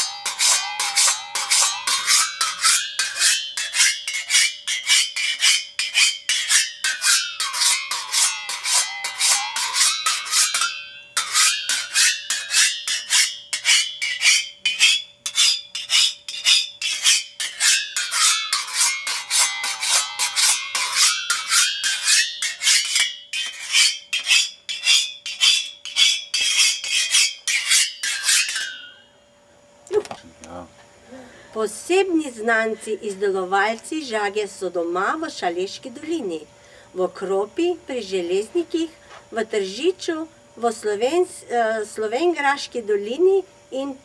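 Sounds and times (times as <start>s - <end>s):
singing saw struck with beater: 0.0s - 22.5s.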